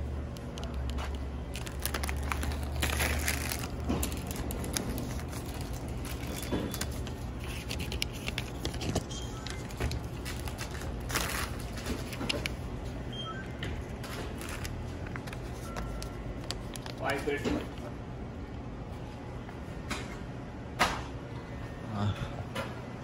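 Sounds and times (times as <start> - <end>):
rustling and clicks of handled items: 0.3 - 12.6, 13.6 - 17.9.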